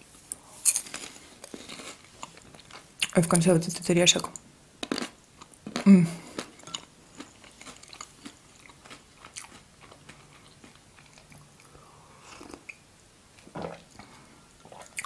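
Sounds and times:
small crunches: 0.6 - 2.8
chewing mouth sounds: 4.9 - 12.8.

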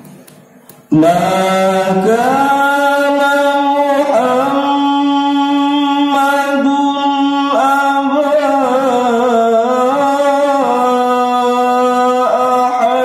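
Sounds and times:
man reciting melodically: 0.9 - 13.0.

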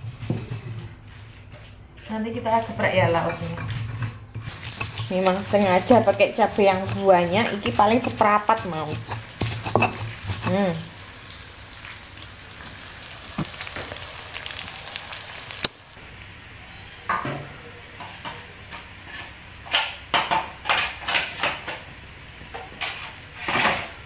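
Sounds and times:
food sizzling in oil: 4.5 - 16.6.

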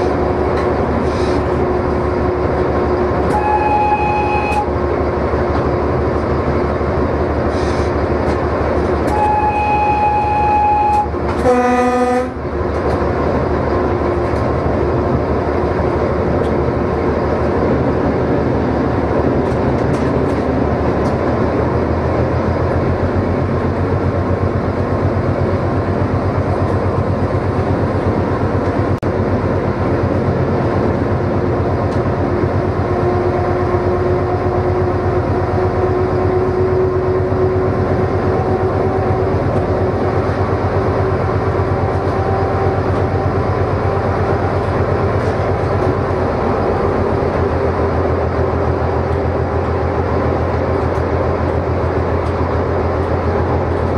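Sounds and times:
diesel locomotive engine rumble: 0.0 - 53.9.

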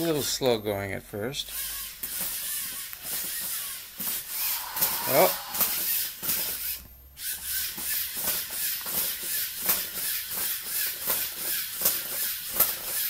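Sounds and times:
steady hiss: 4.3 - 6.0.

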